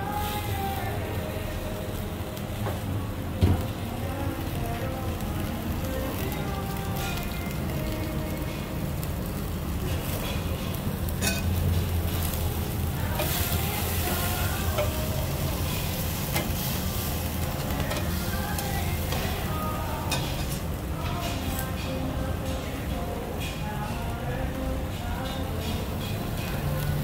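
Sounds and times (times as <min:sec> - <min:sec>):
meat sizzling on a grill: 0:00.0 - 0:27.0.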